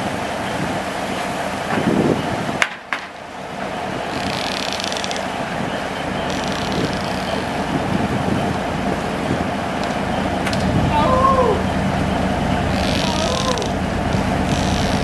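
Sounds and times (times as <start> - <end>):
steady low rumble: 5.1 - 15.0.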